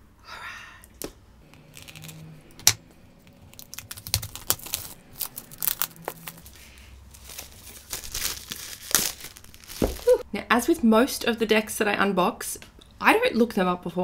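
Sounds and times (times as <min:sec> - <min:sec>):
plastic film crinkling: 0:01.7 - 0:02.2, 0:03.2 - 0:10.2.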